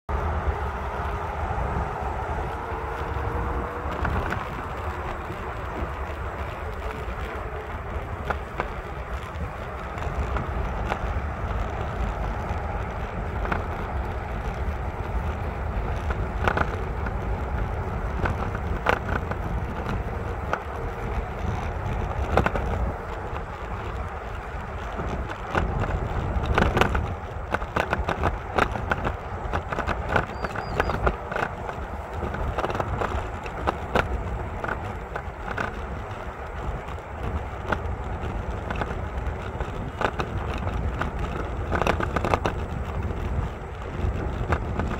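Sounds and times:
steady low rumble: 0.0s - 44.9s.

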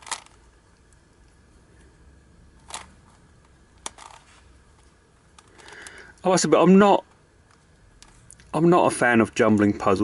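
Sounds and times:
plastic puzzle pieces clicking: 0.0s - 1.0s.

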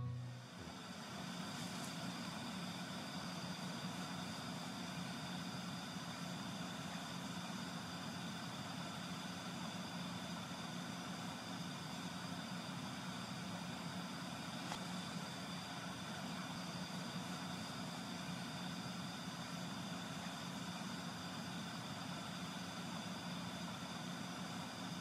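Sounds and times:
fan heater humming: 0.0s - 5.4s.

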